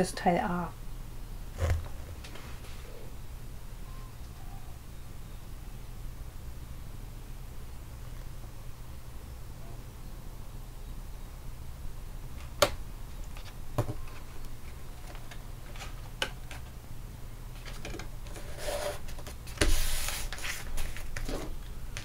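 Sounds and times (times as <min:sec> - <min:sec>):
paper rubbing and rustling: 0:17.6 - 0:21.6.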